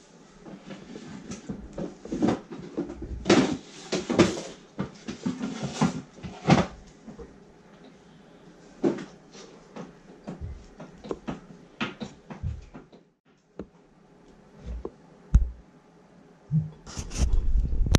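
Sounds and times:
hands knocking and rubbing on table: 0:14.7 - 0:15.6.

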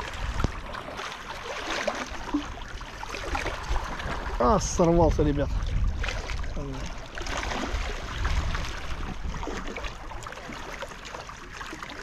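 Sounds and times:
wind buffeting microphone: 0:00.0 - 0:01.1, 0:02.1 - 0:10.2
sea washing against breakwater: 0:00.0 - 0:12.0.

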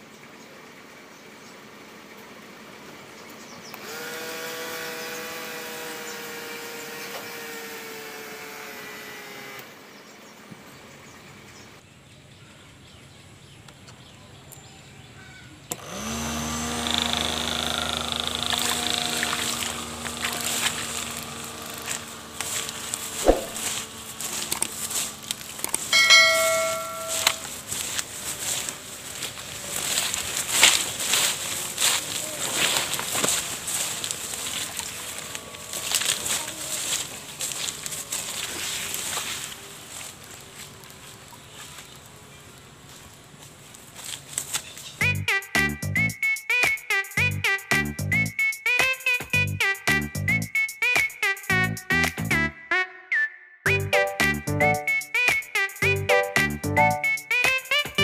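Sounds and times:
small motor whining: 0:03.7 - 0:10.0, 0:15.7 - 0:43.2
sharp click: 0:23.2 - 0:23.6
bell chime ringing: 0:25.9 - 0:27.5.

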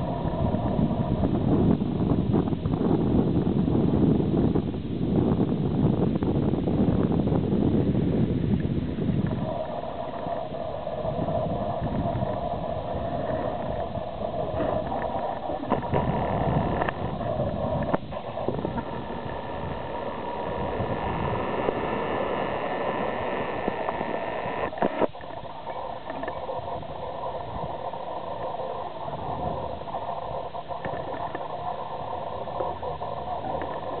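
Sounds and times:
wind buffeting microphone: 0:00.0 - 0:34.0.

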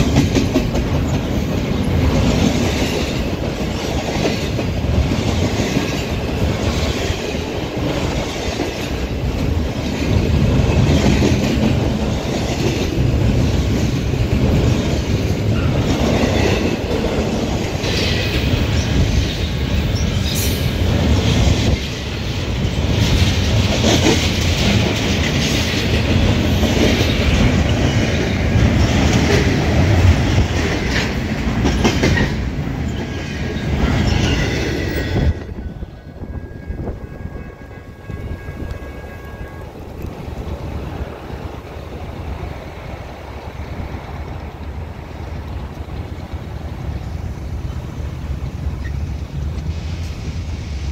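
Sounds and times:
wheels clacking over rails: 0:00.0 - 0:36.5
freight train rolling past: 0:00.0 - 0:50.9.

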